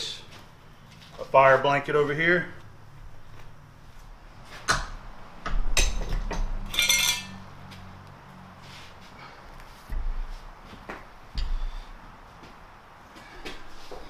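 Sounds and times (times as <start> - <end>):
metal parts clinking: 6.7 - 7.4.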